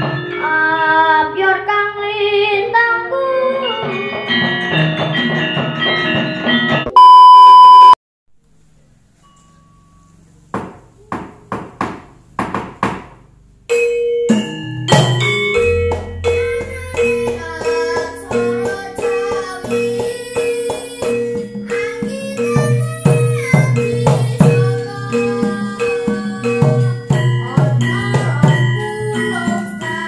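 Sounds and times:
loud steady beep: 6.9s - 8.0s
sharp knocks: 10.6s - 13.2s
music with repeated note: 13.7s - 30.0s.

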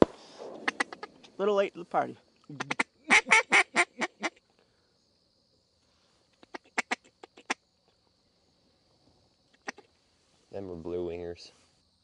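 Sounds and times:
duck quacking: 2.6s - 4.4s.

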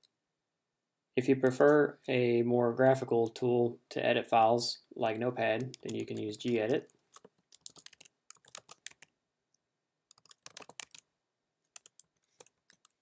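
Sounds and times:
computer keyboard typing: 5.6s - 9.1s, 10.1s - 11.0s, 11.7s - 13.0s.

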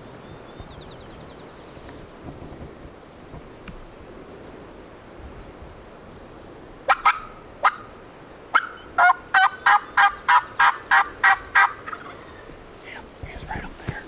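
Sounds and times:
turkey call yelps: 6.9s - 7.9s, 8.5s - 12.3s.

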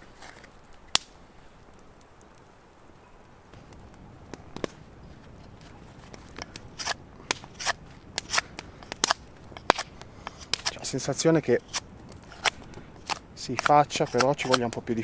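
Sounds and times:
knife cutting strokes: 6.7s - 10.8s, 11.6s - 14.7s.

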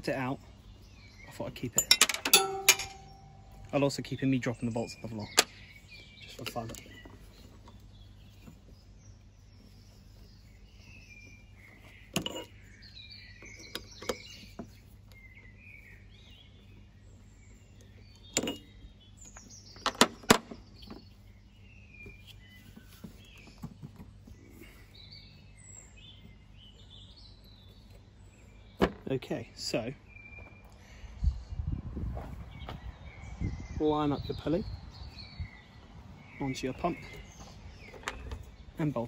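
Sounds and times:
birds singing: 0.0s - 39.0s
sharp metal clinks: 1.7s - 3.7s.

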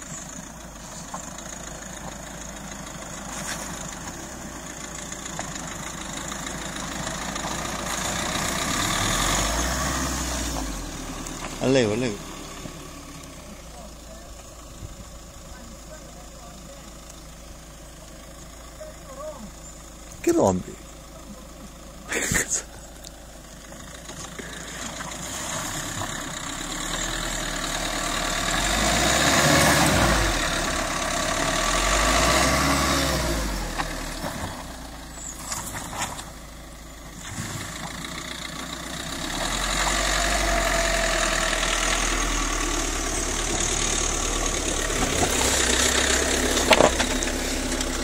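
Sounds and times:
off-road car engine climbing: 0.0s - 48.0s.

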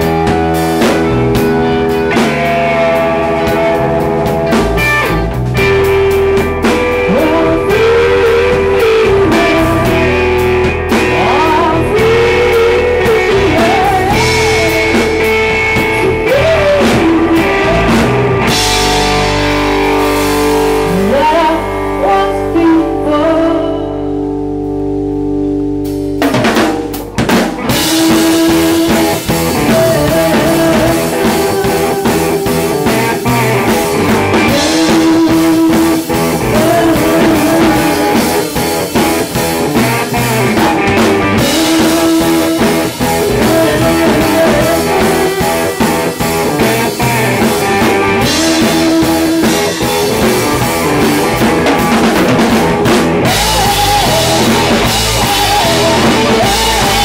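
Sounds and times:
drum kit: 0.0s - 57.0s
rock band playing: 0.0s - 57.0s
electric guitar chord ringing: 17.2s - 26.2s.

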